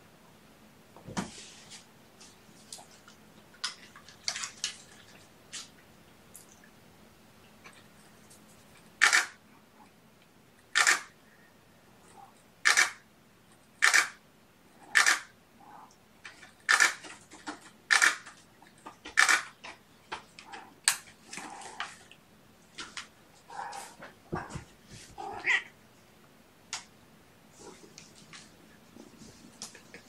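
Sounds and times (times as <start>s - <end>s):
camera shutter clacking: 9.0s - 9.4s, 10.8s - 11.1s, 12.6s - 13.0s, 13.8s - 14.2s, 15.0s - 15.3s, 16.7s - 17.0s, 17.9s - 18.2s, 19.2s - 19.5s.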